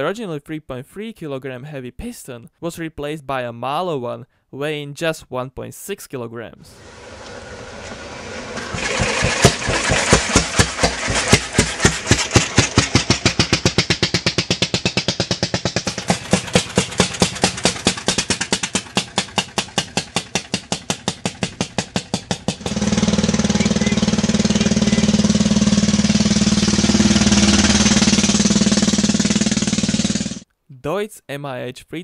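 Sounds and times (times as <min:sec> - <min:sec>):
single-cylinder engine firing: 0:06.8 - 0:30.4.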